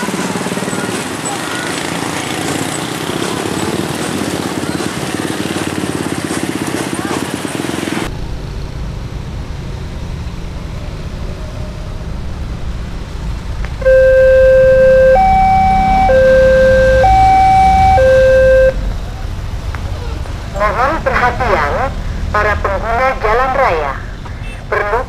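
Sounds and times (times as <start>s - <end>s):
motorcycles passing: 0.0s - 25.0s
road traffic: 0.0s - 25.0s
level crossing warning alarm: 13.8s - 18.8s.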